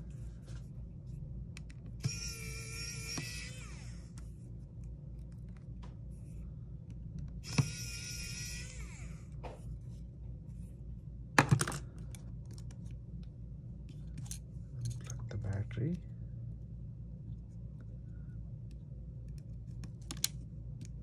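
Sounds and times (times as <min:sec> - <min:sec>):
electric screwdriver whirring: 0:02.0 - 0:04.2, 0:07.4 - 0:09.4.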